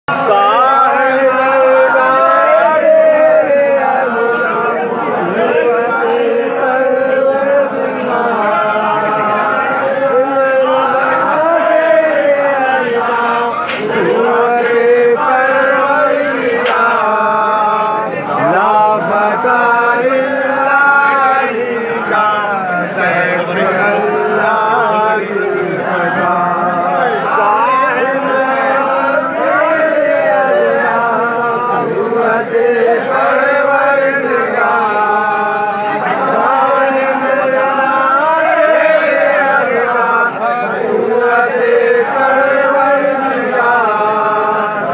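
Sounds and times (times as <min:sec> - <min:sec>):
men chanting: 0:00.1 - 0:44.9.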